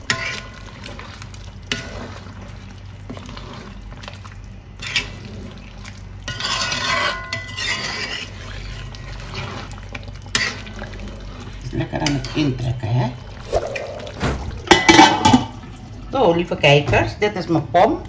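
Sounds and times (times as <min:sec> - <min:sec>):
spoon stirring in a pot: 0:00.0 - 0:12.4.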